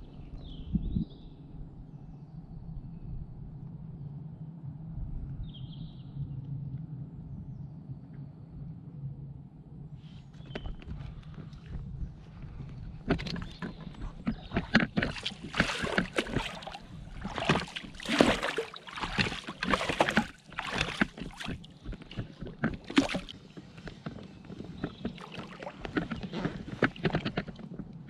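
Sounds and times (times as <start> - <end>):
oars splashing in water: 12.4 - 28.0.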